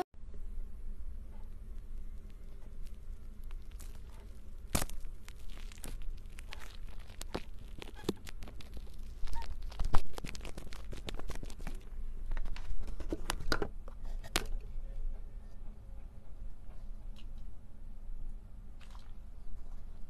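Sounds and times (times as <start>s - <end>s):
small crackling clicks and tearing: 1.4s - 14.7s
knife cutting rubbery ball: 3.5s - 11.8s.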